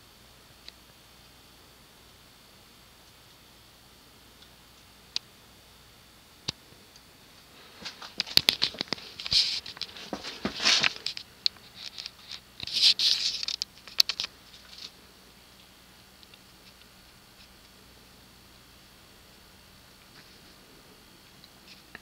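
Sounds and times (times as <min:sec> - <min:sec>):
rustling: 0:07.4 - 0:15.0
clicking and scratching: 0:07.8 - 0:15.0.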